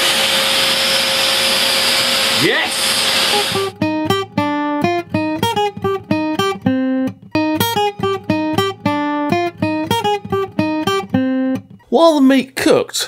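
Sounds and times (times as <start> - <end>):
quickly plucked guitar notes: 3.5 - 11.9.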